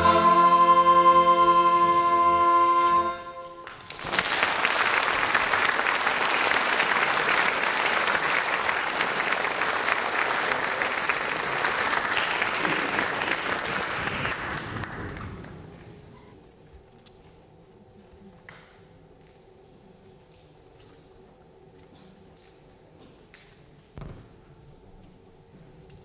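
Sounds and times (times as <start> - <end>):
harmonica ensemble chord: 0.0 - 3.8
audience applause: 3.6 - 16.0.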